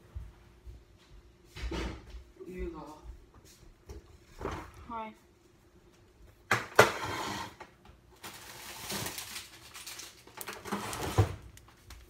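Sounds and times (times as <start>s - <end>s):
rustling and handling noises: 7.3s - 12.0s.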